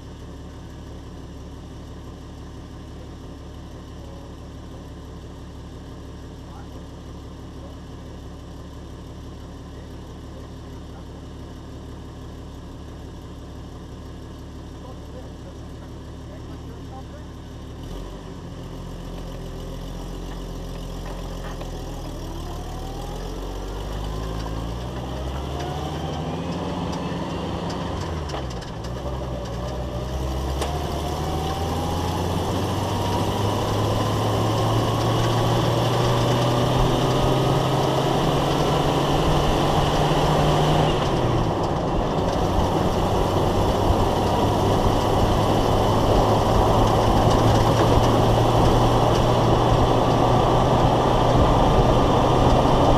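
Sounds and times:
road noise: 0:00.0 - 0:52.9
car engine accelerating: 0:14.8 - 0:52.9.

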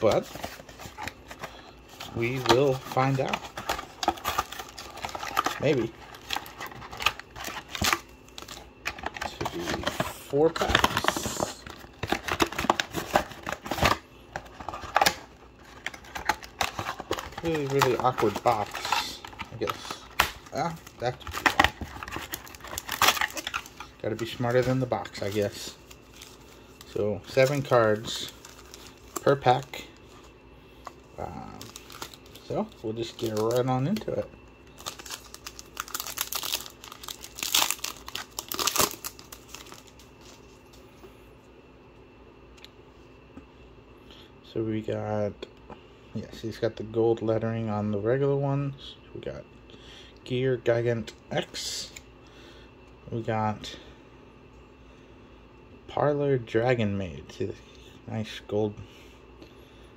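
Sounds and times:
foil wrapper tearing and crinkling: 0:00.0 - 0:26.4, 0:34.8 - 0:40.0.

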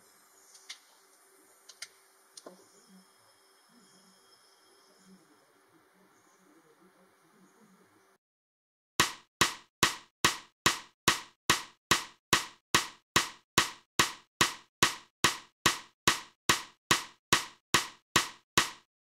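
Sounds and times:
sharp wooden clacks: 0:09.0 - 0:18.9.

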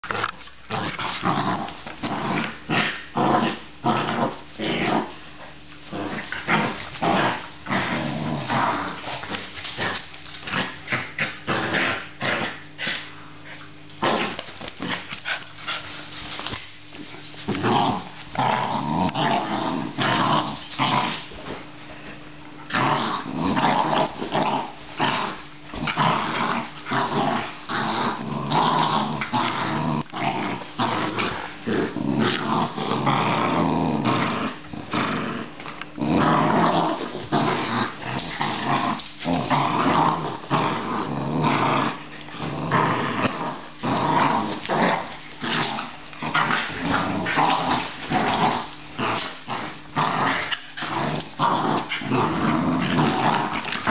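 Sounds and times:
dogs growling while play-fighting: 0:00.0 - 0:53.9.

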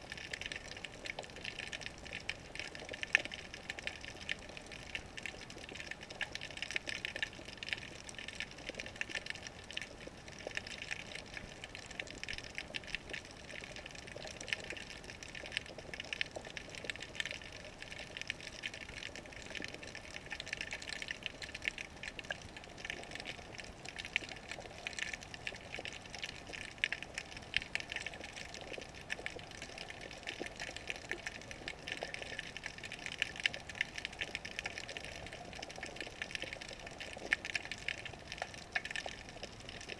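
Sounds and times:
crackle of small clicks: 0:00.0 - 0:39.9.

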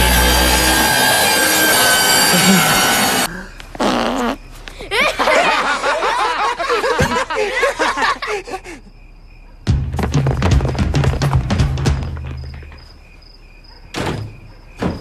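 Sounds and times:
boys laughing: 0:02.1 - 0:03.3, 0:04.8 - 0:08.9.

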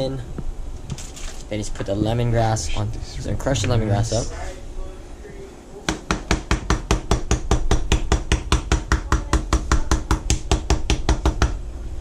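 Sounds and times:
knife pounding on cutting board: 0:05.9 - 0:11.6.

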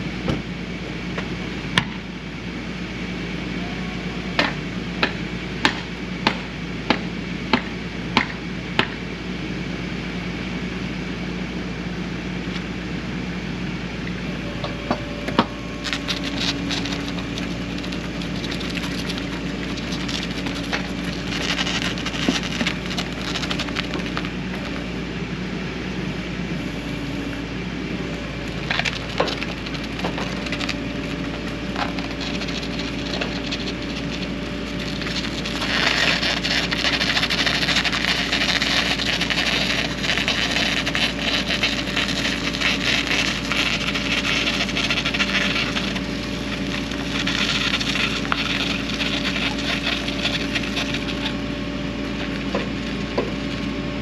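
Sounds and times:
winch running with steady hum: 0:00.0 - 0:54.0
tires scraping over grit: 0:14.4 - 0:54.0.

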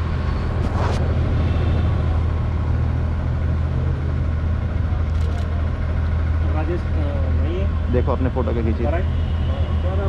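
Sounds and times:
traffic engine rumble: 0:00.0 - 0:10.0.

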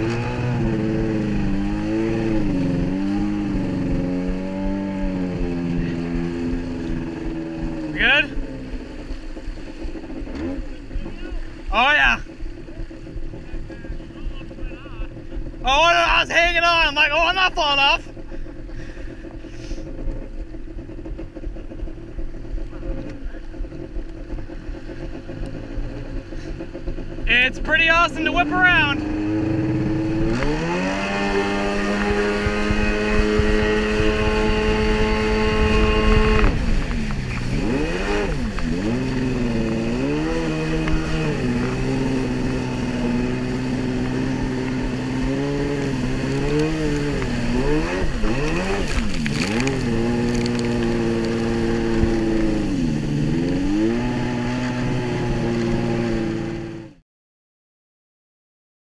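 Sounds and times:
water rushing past hull: 0:00.0 - 0:56.8
watercraft engine running: 0:00.0 - 0:57.0.

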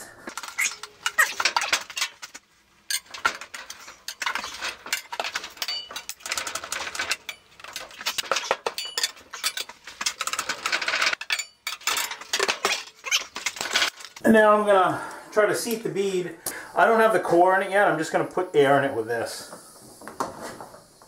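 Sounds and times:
tire irons clinking and scraping: 0:00.3 - 0:14.2.

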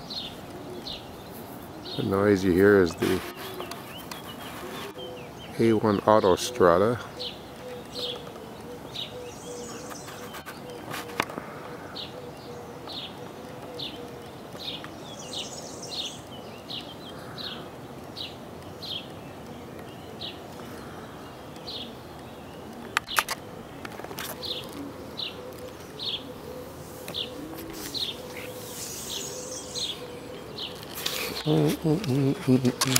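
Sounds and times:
bird chirping: 0:00.0 - 0:32.9
distant motorway traffic hum: 0:00.0 - 0:32.9
sharp clicks: 0:21.5 - 0:24.8.

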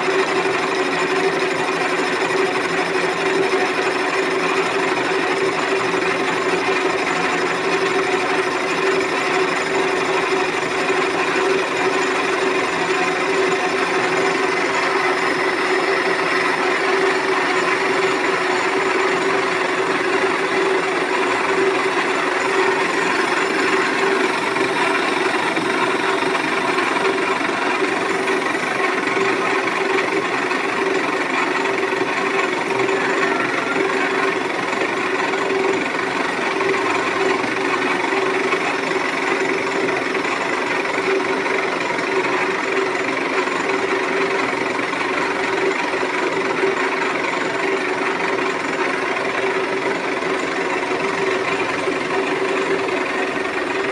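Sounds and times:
metal lathe running: 0:00.0 - 0:53.9.

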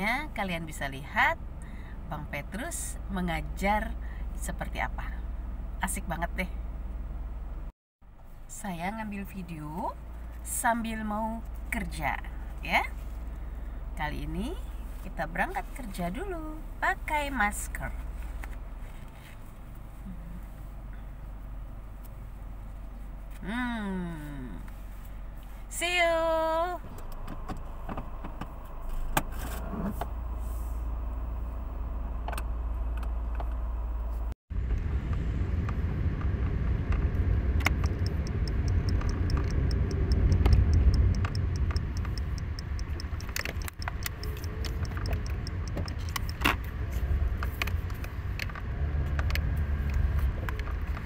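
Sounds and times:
car driving rumble: 0:00.0 - 0:51.0
car engine humming: 0:00.0 - 0:51.0
small clicks: 0:36.9 - 0:51.0.

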